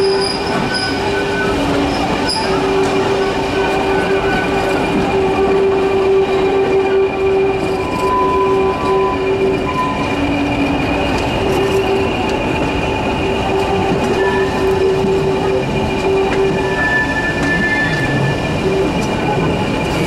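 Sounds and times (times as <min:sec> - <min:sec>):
train rumble: 0:00.0 - 0:20.0
train wheels squealing on rails: 0:00.0 - 0:20.0.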